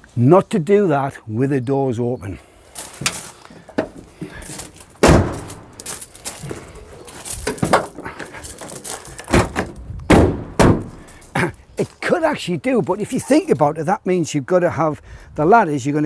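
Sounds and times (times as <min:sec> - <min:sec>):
van doors slamming shut: 0:05.0 - 0:05.8, 0:09.2 - 0:11.1.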